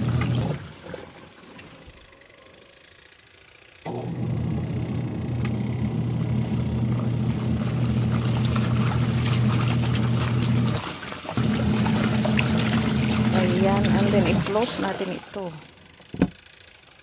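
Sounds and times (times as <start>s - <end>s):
washing machine motor humming: 0.0s - 17.0s
water sloshing: 6.9s - 15.7s.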